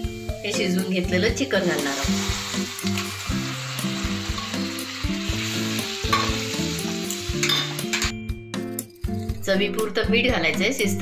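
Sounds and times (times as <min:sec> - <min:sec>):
paste sizzling in oil: 0:00.0 - 0:08.1
soft background music: 0:00.0 - 0:11.0.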